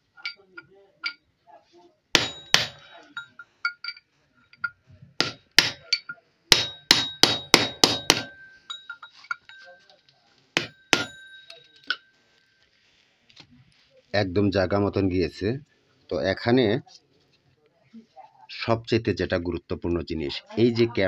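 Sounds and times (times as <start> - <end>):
hammer striking metal gear: 2.2 - 2.8, 4.6 - 8.5.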